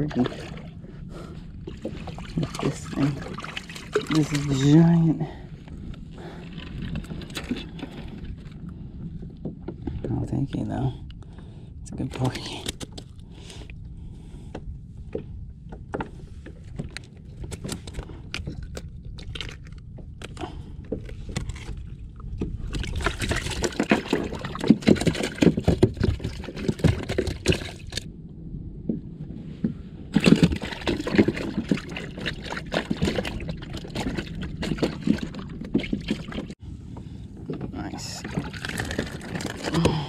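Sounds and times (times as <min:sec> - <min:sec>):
water splashing against kayak hull: 0:00.0 - 0:10.2, 0:12.0 - 0:28.1, 0:30.1 - 0:40.0
steady low rumble: 0:00.0 - 0:40.0.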